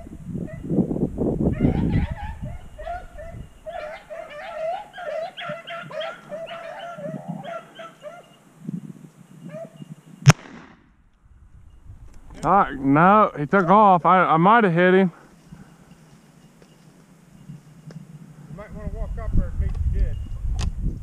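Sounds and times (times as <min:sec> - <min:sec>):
hounds baying and yelping: 0:00.0 - 0:00.7, 0:01.5 - 0:08.5, 0:09.4 - 0:10.0, 0:13.5 - 0:13.9
shotgun shot: 0:10.2 - 0:11.0.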